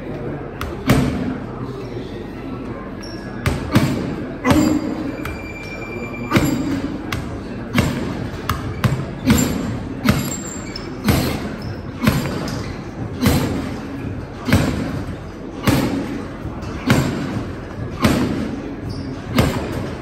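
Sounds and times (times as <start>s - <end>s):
punches thudding on punching bag: 3.4s - 4.9s, 6.3s - 13.8s, 14.4s - 18.6s, 19.3s - 20.0s.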